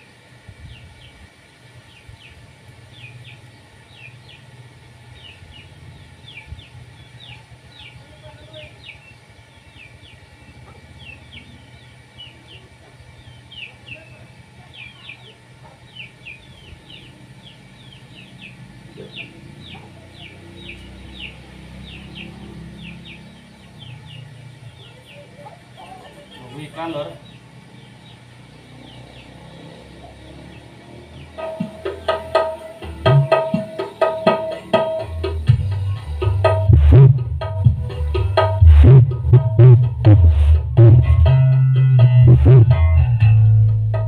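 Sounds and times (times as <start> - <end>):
chickens peeping: 1.9 - 36.6.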